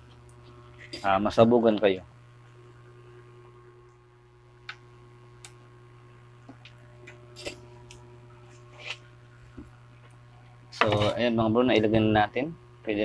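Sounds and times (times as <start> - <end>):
low mains hum: 0.0 - 13.0
small soldering clicks and taps: 4.6 - 5.6.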